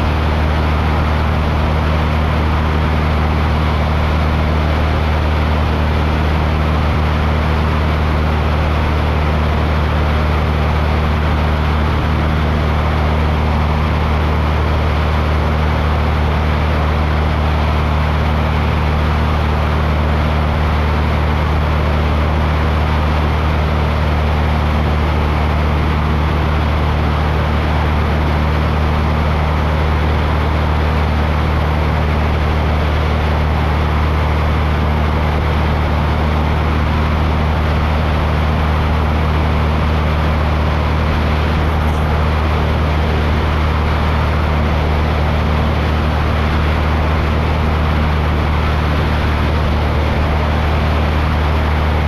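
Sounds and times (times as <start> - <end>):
aircraft engine drone: 0.0 - 52.0
rushing noise: 24.0 - 52.0.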